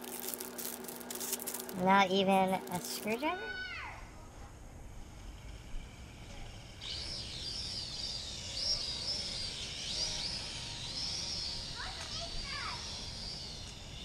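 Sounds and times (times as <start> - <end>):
faint outdoor rumble: 0.0 - 14.0
birds chirping: 6.4 - 14.0.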